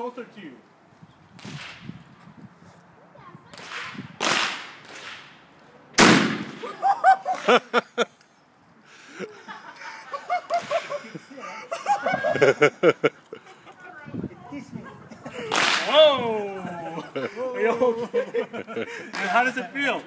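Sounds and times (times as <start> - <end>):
shotgun blast: 6.0 - 6.8
people laughing: 6.6 - 8.2, 8.9 - 14.0, 14.6 - 19.6
people talking: 15.8 - 18.3.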